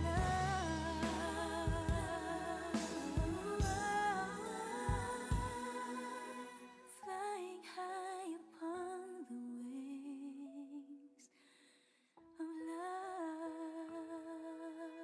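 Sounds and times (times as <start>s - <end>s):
soft backing music: 0.0s - 11.0s.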